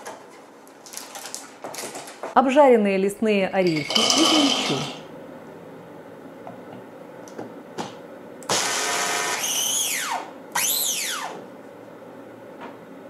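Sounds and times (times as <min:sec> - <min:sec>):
electric chopper grinding nuts: 0:08.5 - 0:11.4.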